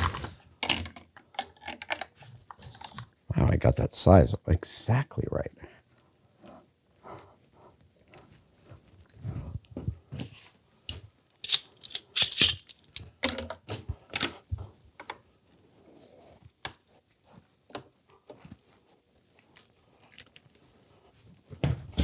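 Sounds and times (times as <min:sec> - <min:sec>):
metal tools clattering on workbench: 0:11.4 - 0:13.6.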